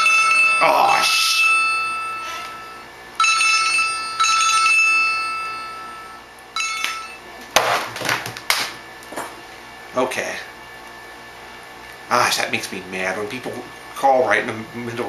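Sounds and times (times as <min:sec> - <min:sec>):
telephone ringing: 0:00.0 - 0:07.3.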